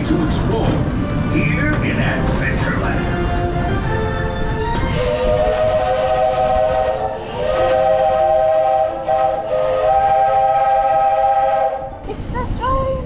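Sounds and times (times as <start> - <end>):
train rumbling: 0.0 - 13.0
steam locomotive whistle: 4.9 - 12.1.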